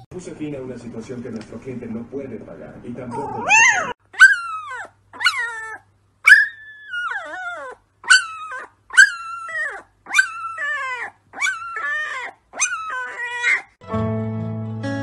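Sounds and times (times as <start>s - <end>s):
puppy howling: 3.1s - 13.8s.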